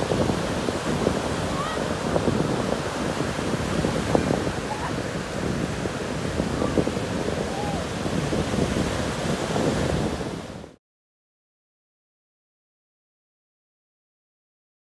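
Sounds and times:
surf breaking on a beach: 0.0s - 10.8s
wind buffeting microphone: 0.0s - 10.8s.

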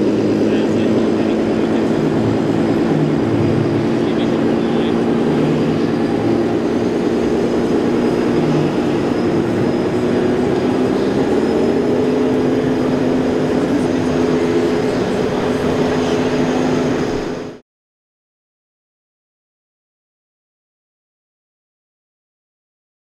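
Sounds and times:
toy truck engine drone: 0.0s - 17.6s.

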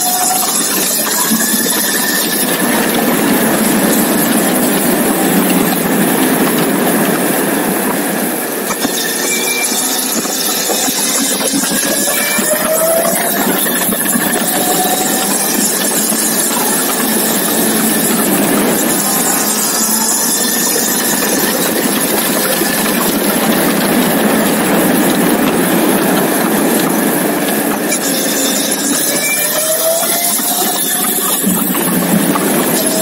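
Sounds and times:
motorcycle engine running: 1.3s - 8.7s, 9.9s - 28.0s.

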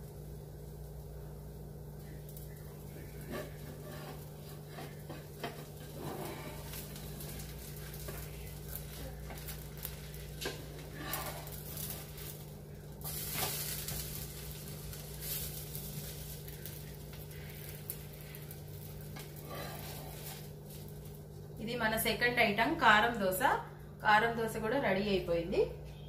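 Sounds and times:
dosa sizzling in pan: 0.0s - 23.2s
spatula scraping pan: 3.0s - 12.4s.

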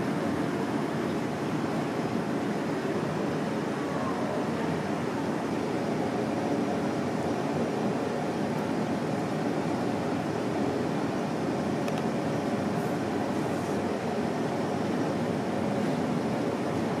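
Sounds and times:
steady background hum: 0.0s - 17.0s
faint click: 11.8s - 12.1s.

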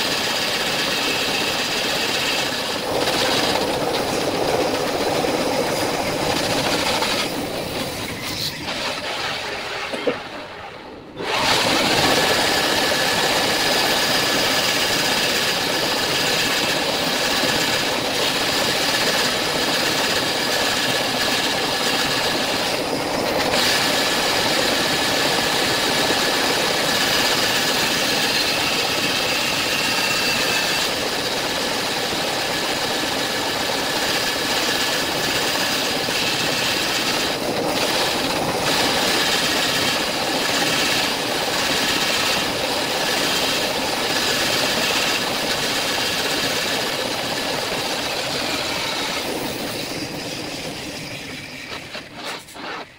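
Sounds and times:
bandsaw cutting wood: 11.2s - 33.0s, 34.0s - 52.9s.

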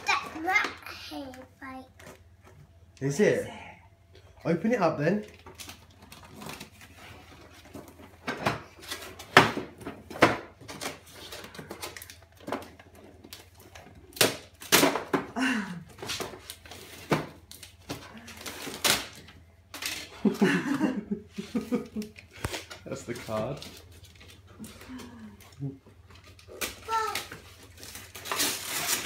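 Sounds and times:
wrapping paper tearing: 26.2s - 29.0s.

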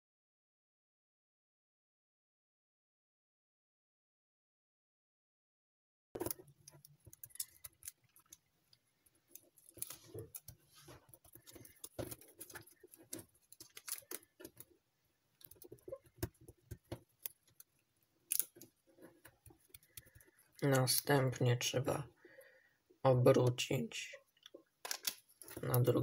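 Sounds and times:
paper rustling: 9.4s - 14.7s.

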